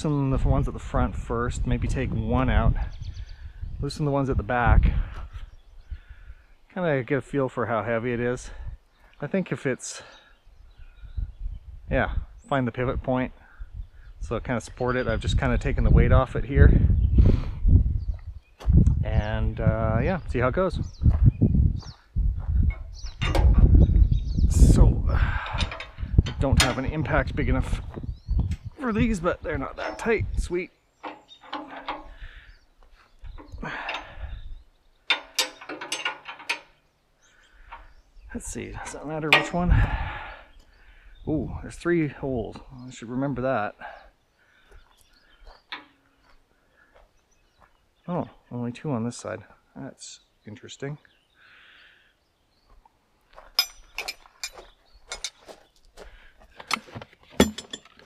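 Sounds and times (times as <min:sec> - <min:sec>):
hand tools scraping: 0:28.9 - 0:34.4
sharp metallic clicks and clinks: 0:31.0 - 0:32.2, 0:35.1 - 0:36.8, 0:39.3 - 0:39.7, 0:53.6 - 0:55.4, 0:56.6 - 0:58.0.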